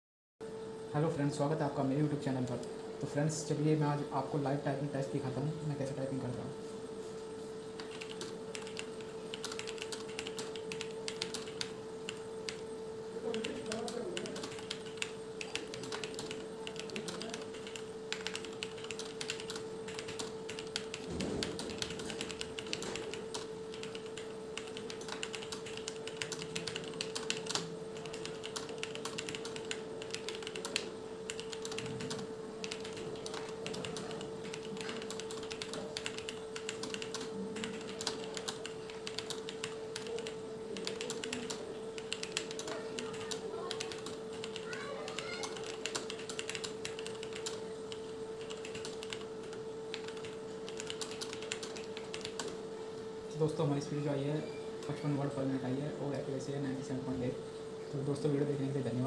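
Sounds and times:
steady hum: 0:00.4 - 0:59.0
fast typing on keyboard: 0:07.8 - 0:12.6, 0:13.2 - 0:52.6.

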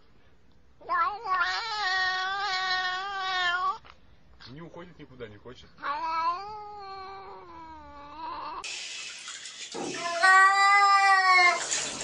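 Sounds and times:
cat meowing: 0:00.8 - 0:03.8, 0:05.8 - 0:08.6, 0:09.9 - 0:11.8
cat yowling: 0:00.8 - 0:03.8, 0:05.8 - 0:08.7, 0:09.8 - 0:11.8
water pouring in a bathtub: 0:08.6 - 0:12.0.

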